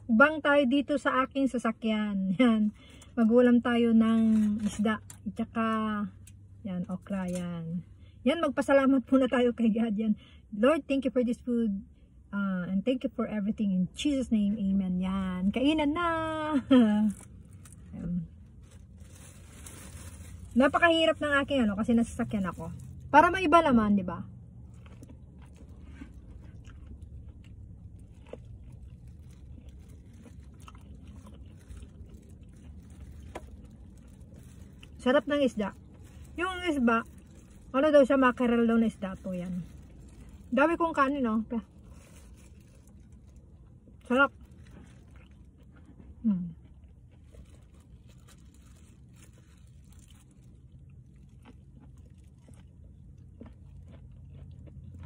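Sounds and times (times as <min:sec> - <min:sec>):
low steady hum: 0:00.0 - 0:55.0
person chewing food: 0:24.6 - 0:35.0, 0:41.8 - 0:55.0.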